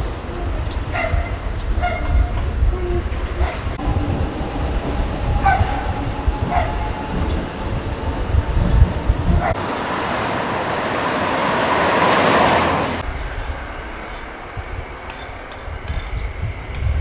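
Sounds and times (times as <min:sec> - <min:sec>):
vehicle rumble and rushing: 0:02.4 - 0:14.8.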